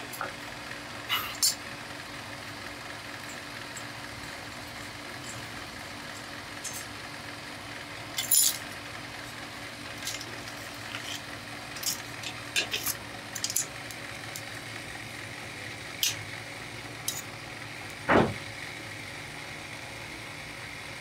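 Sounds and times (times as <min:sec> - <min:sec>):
steady low hum: 0:00.0 - 0:21.0
metal tools clinking: 0:08.2 - 0:08.6, 0:10.0 - 0:13.7, 0:17.1 - 0:17.3.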